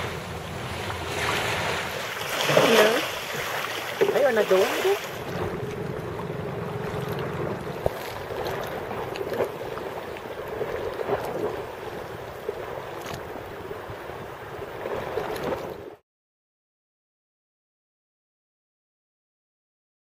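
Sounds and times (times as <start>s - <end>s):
small waves lapping at shoreline: 0.0s - 16.0s.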